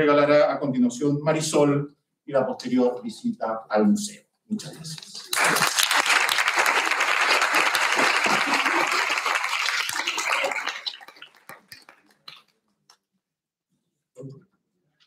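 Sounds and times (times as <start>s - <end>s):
small audience applauding: 4.9s - 12.6s.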